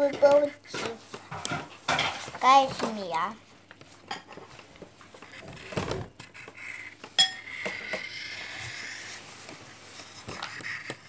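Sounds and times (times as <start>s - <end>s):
pencil scratching on paper: 0.0s - 1.3s, 5.1s - 11.0s.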